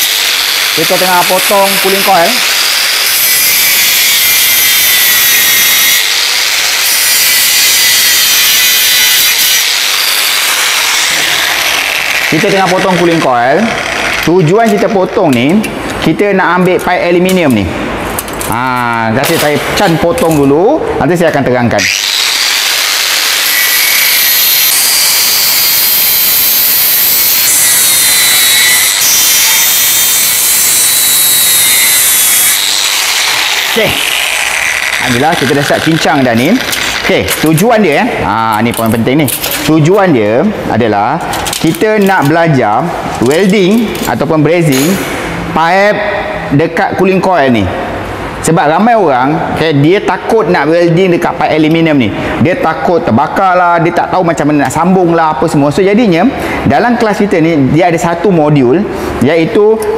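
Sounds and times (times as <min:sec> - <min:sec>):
angle grinder cutting metal: 0:00.0 - 0:14.5, 0:21.8 - 0:37.9.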